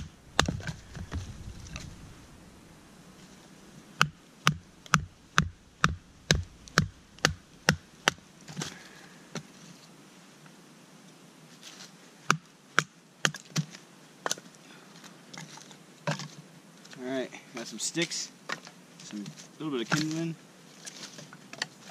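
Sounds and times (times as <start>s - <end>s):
firewood sticks knocking: 0.0s - 2.0s, 4.0s - 8.7s, 19.8s - 20.3s.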